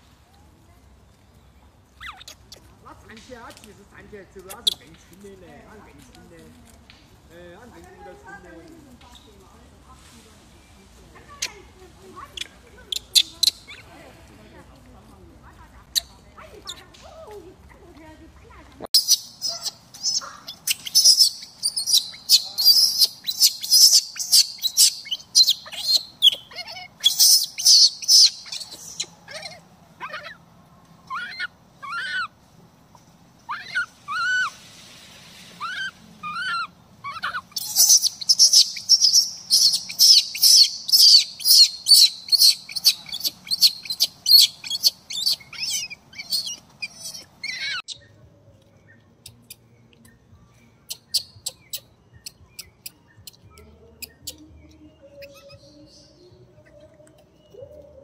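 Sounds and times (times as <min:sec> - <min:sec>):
infant monkey screaming: 0:19.0 - 0:30.4, 0:31.0 - 0:32.4, 0:33.5 - 0:34.6, 0:35.6 - 0:48.0.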